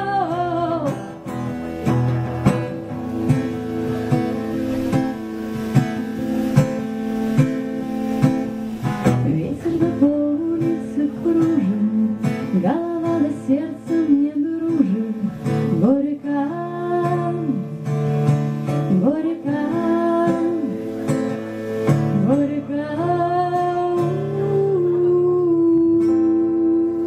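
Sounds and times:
woman singing: 0.0s - 6.2s, 9.0s - 27.0s
acoustic guitar strumming: 0.0s - 27.0s.

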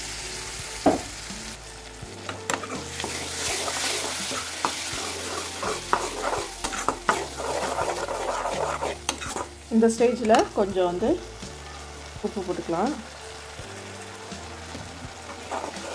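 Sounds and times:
tomato sizzling in hot oil: 0.0s - 15.9s
steel ladle scraping pan: 2.2s - 9.6s, 15.3s - 15.9s.

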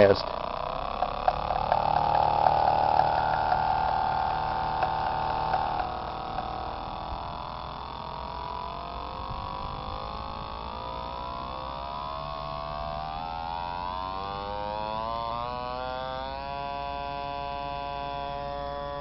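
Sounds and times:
electronic tone over radio: 0.0s - 15.2s.

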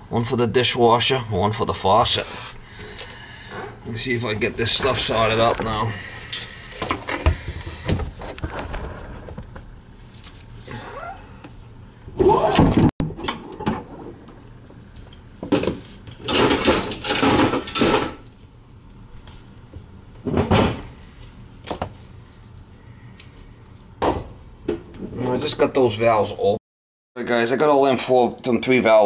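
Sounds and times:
objects rustling and clattering: 2.8s - 11.5s.

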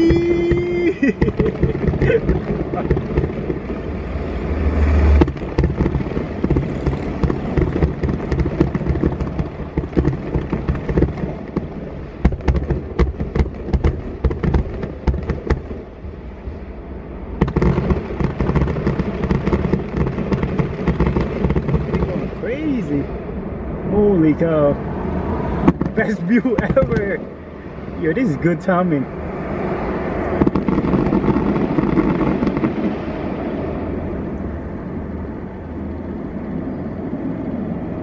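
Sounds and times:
firework pops and bangs: 0.0s - 3.9s, 5.1s - 15.9s, 17.4s - 22.8s, 25.6s - 27.3s, 30.3s - 33.3s
deep firework boom: 0.0s - 16.3s, 17.3s - 24.4s, 25.1s - 28.0s, 29.0s - 35.3s.

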